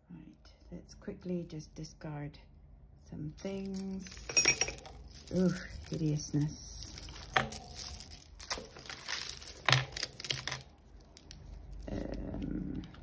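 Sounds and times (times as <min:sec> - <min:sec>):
metal jewellery clinking: 0:03.3 - 0:12.1.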